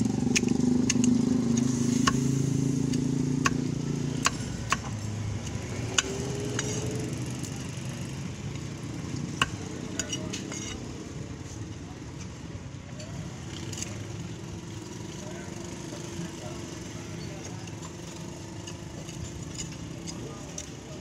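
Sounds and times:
vehicle engine running: 0.0 - 10.6
cleaver chopping on wooden block: 0.3 - 2.3, 2.9 - 6.8, 9.4 - 10.6.

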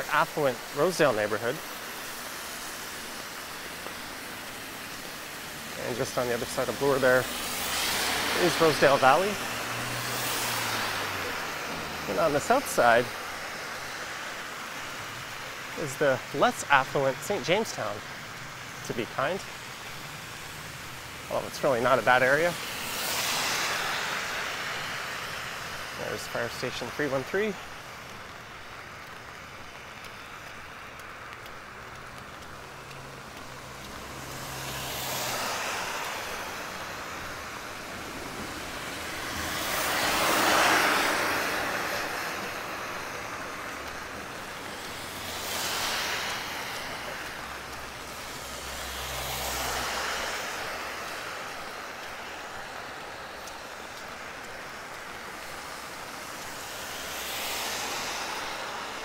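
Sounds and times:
car tyres hissing on wet road: 0.0 - 59.0
rain hiss: 0.0 - 59.0.

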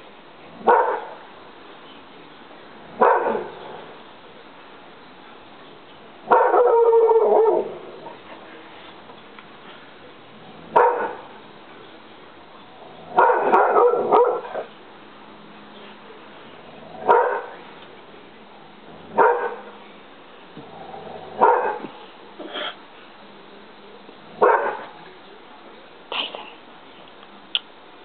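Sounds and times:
dog barking: 0.6 - 1.2, 3.0 - 3.6, 6.3 - 7.7, 10.7 - 11.3, 13.1 - 14.7, 17.0 - 17.6, 19.2 - 19.7, 21.4 - 22.0, 24.4 - 25.0.

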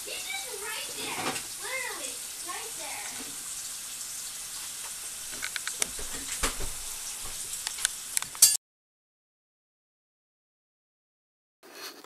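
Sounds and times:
outdoor background hiss: 0.0 - 8.4.

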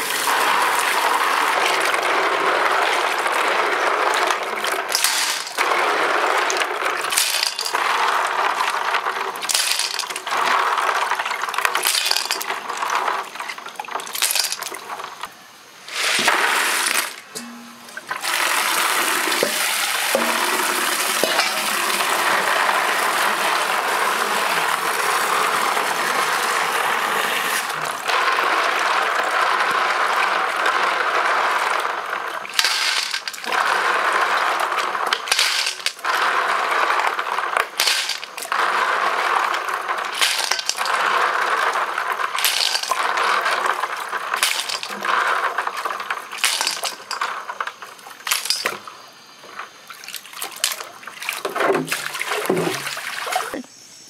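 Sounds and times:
hands scrubbing snails: 0.0 - 15.1, 18.2 - 48.8
tap water running into basin: 0.0 - 15.3, 15.9 - 53.6
snail shells clattering: 0.2 - 15.1, 28.0 - 48.9.

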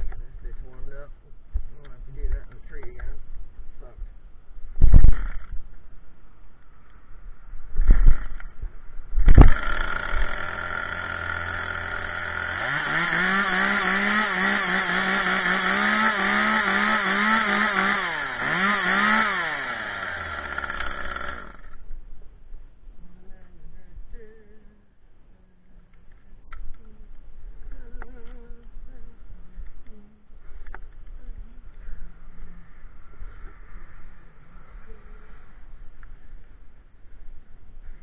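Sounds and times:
chainsaw idling and revving: 5.1 - 5.5, 9.4 - 21.8
chainsaw pull cord: 5.1 - 5.6, 7.9 - 8.5, 9.3 - 21.8.

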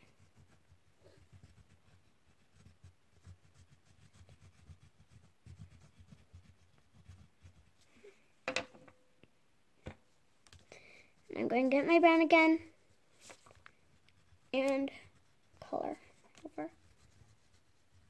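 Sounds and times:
oil pastel rubbing on paper: 0.0 - 8.1, 11.9 - 18.0.

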